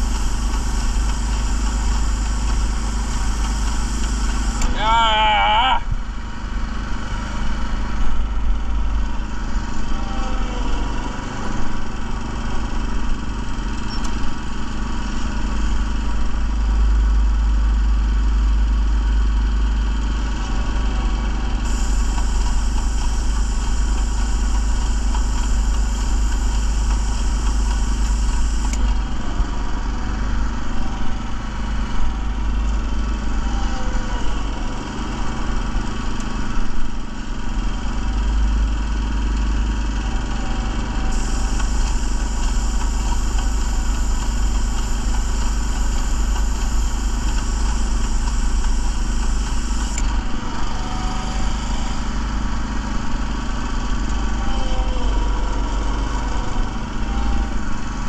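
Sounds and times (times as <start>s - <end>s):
paint spraying hiss: 0.0s - 4.7s, 21.6s - 28.8s, 41.1s - 50.0s
small gasoline engine running: 0.0s - 58.0s.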